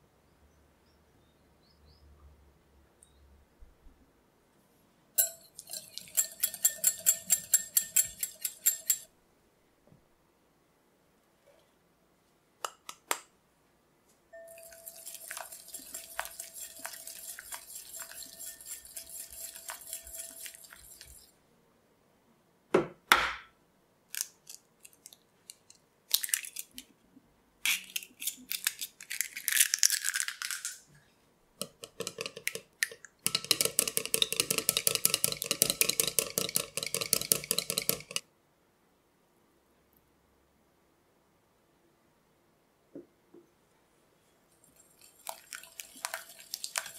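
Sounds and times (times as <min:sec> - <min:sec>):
egg beaten in bowl: 0:05.2 - 0:09.1, 0:14.4 - 0:21.3, 0:31.6 - 0:38.2, 0:44.7 - 0:46.9
whisk ticking against glass bowl: 0:05.2 - 0:09.1, 0:14.4 - 0:21.3, 0:31.6 - 0:32.6, 0:33.2 - 0:38.2, 0:45.0 - 0:46.9
eggshell crackling: 0:05.3 - 0:09.1, 0:14.4 - 0:21.3, 0:31.6 - 0:38.2, 0:44.6 - 0:46.9.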